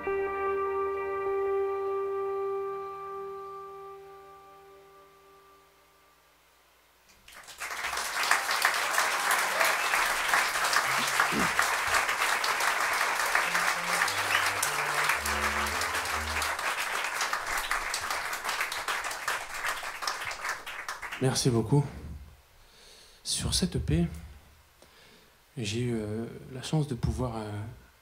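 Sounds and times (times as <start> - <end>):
audience applause: 7.2 - 21.3.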